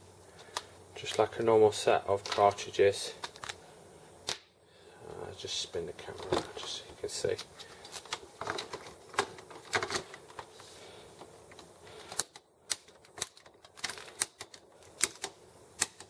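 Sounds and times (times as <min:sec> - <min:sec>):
plastic cartridges snapping into printer: 0:11.6 - 0:16.0.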